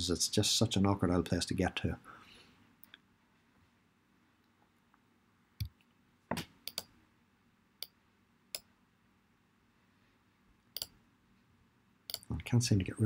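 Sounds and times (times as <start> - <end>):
computer mouse clicking: 6.6 - 6.9, 10.7 - 11.0, 12.1 - 12.3.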